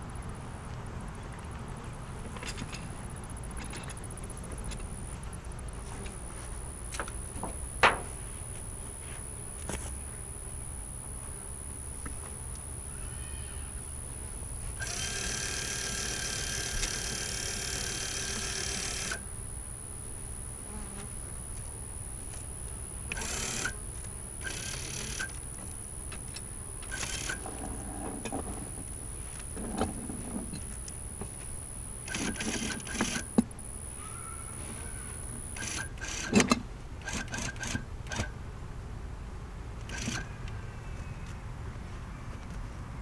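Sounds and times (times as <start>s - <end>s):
honeybees buzzing: 4.2s - 36.0s.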